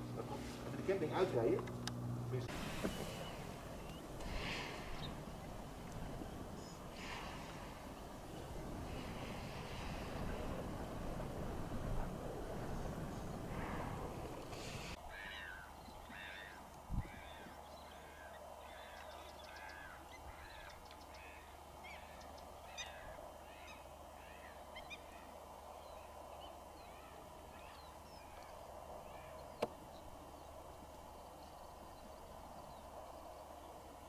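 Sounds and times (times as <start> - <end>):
faint steady hiss: 0.0 - 34.0
bird honking calls: 15.1 - 25.2.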